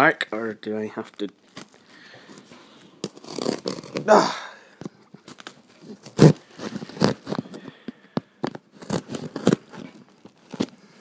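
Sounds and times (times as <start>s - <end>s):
knife cutting through a box: 3.0s - 4.1s, 5.9s - 7.5s, 8.8s - 10.7s.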